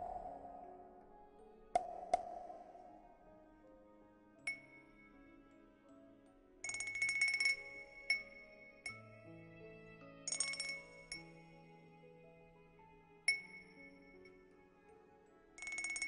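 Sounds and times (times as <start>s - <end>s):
soft background music: 0.0s - 16.0s
wind-chime cup ringing: 4.5s - 4.9s, 6.6s - 9.1s, 10.3s - 11.5s, 13.3s - 14.4s, 15.6s - 16.0s.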